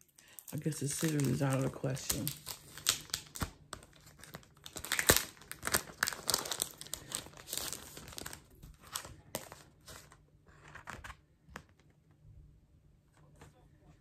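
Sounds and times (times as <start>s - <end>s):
plastic packaging crinkling and tearing: 0.0s - 11.2s.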